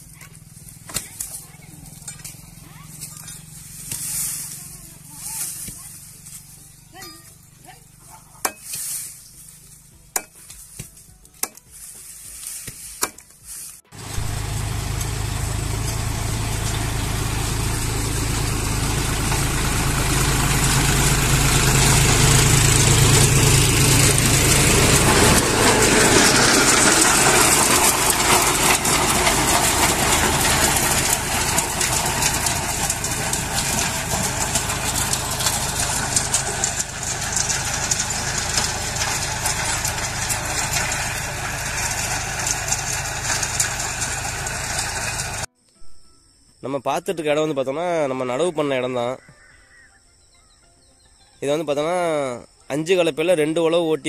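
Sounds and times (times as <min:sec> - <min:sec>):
blade chopping stems: 0:10.1 - 0:13.4
tractor diesel engine drone: 0:13.9 - 0:45.5.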